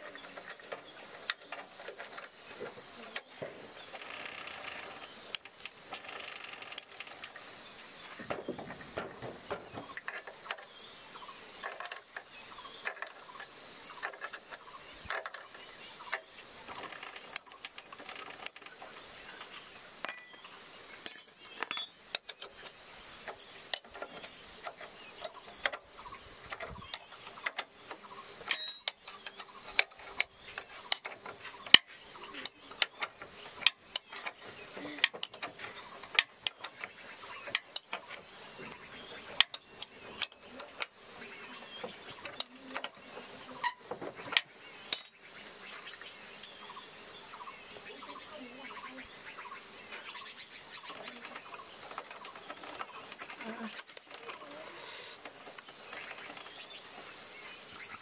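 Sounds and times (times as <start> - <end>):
faint steady high tone: 20.0 - 22.4.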